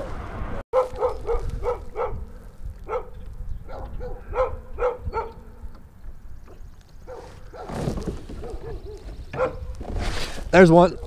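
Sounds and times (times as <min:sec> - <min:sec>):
wind rumble on microphone: 0:00.0 - 0:10.2
dog barking: 0:00.8 - 0:02.3, 0:02.9 - 0:05.5, 0:07.1 - 0:07.7, 0:08.4 - 0:09.7.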